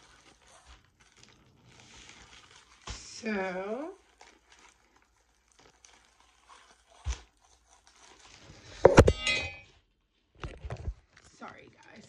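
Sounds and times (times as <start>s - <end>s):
handling rustle: 0.0s - 9.7s
phone falling with a loud knock: 8.9s - 9.6s.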